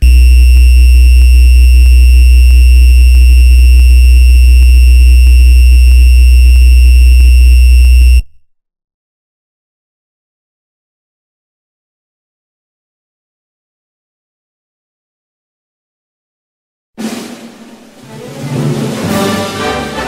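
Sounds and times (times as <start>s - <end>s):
loud electronic buzz: 0.0s - 8.4s.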